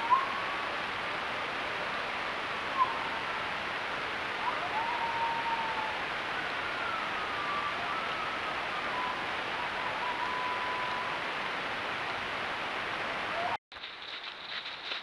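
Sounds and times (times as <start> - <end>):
coyotes howling: 0.0 - 0.9, 2.6 - 11.5
steady hiss: 0.0 - 15.0.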